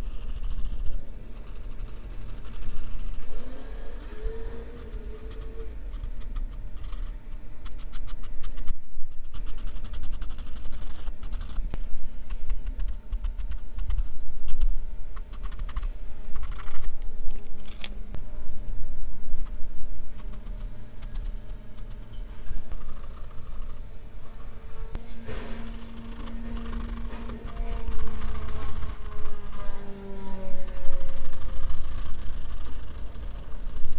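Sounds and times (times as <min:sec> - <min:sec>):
pencil scratching on paper: 0:00.0 - 0:11.7, 0:12.3 - 0:17.0, 0:22.7 - 0:30.0, 0:30.6 - 0:33.9.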